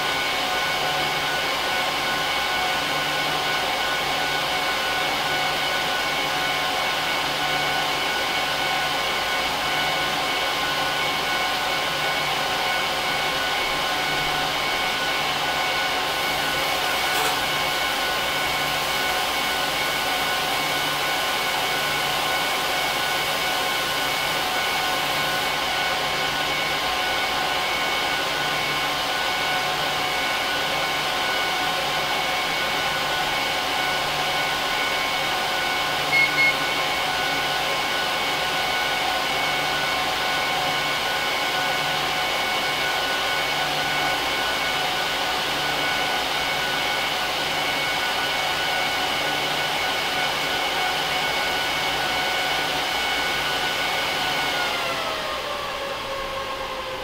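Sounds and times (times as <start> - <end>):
server fans whining: 0.0 - 57.0
short high beeps: 36.1 - 36.7.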